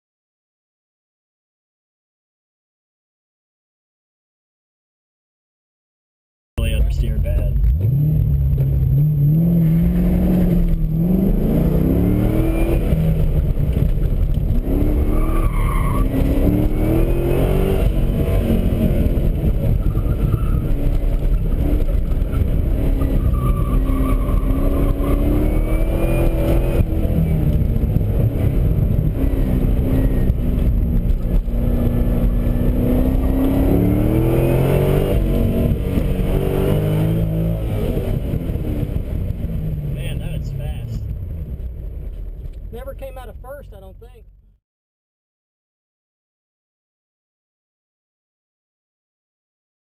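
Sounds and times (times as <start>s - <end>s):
car engine revving from cabin: 6.9s - 13.8s, 16.0s - 39.0s
tyre squeal: 15.0s - 16.3s, 19.8s - 20.8s, 22.3s - 26.4s.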